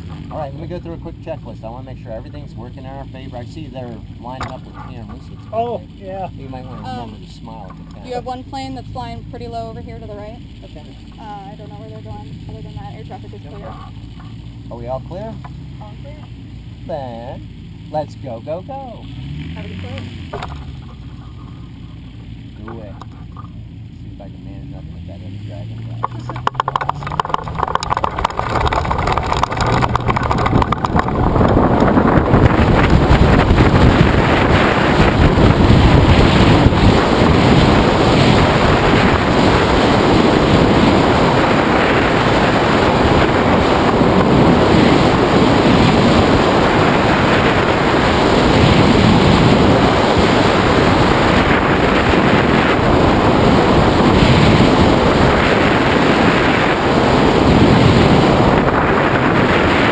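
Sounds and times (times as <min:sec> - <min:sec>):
wind rushing on microphone: 0:25.8 - 0:59.9.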